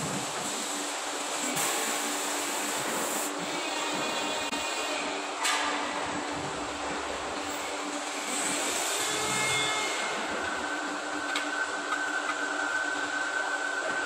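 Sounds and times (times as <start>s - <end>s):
machine humming and hissing: 0.0s - 14.0s.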